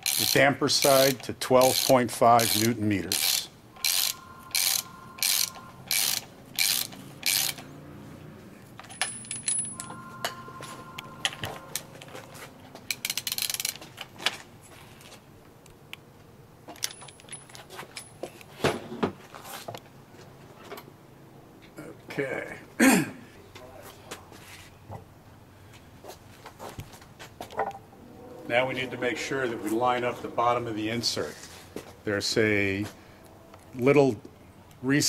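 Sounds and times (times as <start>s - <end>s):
ratchet wrench clicking: 0.0s - 7.7s, 12.9s - 13.8s
metal clicks and handling knocks: 16.7s - 18.5s.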